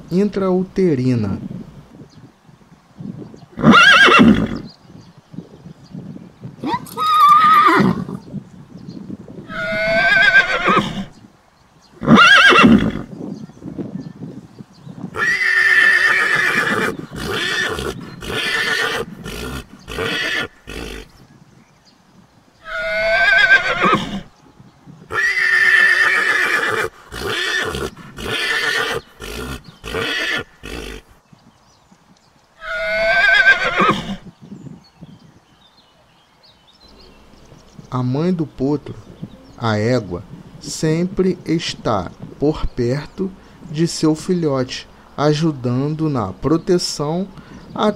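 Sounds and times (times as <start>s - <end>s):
foal whinnying: 6.6s - 8.2s, 9.5s - 11.1s, 15.2s - 21.1s, 22.6s - 24.3s, 25.1s - 31.0s, 32.6s - 34.2s.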